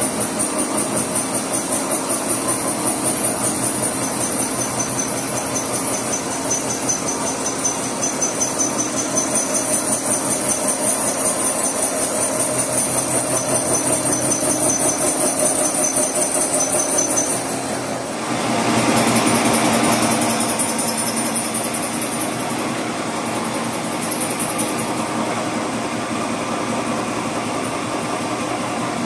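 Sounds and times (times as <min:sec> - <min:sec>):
boring mill machining whir: 0:00.0 - 0:29.0
high-pitched ring: 0:02.5 - 0:17.8.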